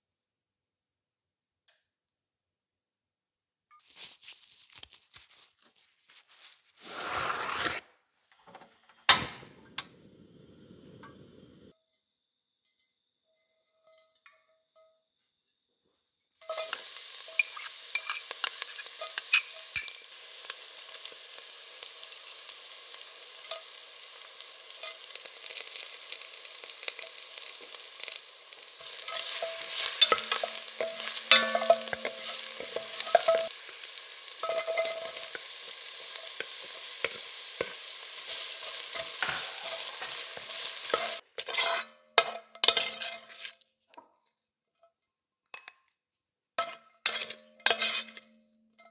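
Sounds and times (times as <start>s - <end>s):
spices sizzling in hot oil: 16.3s - 43.6s, 46.6s - 48.9s
wooden spoon stirring in pot: 16.4s - 20.1s, 23.2s - 43.6s, 46.6s - 48.2s.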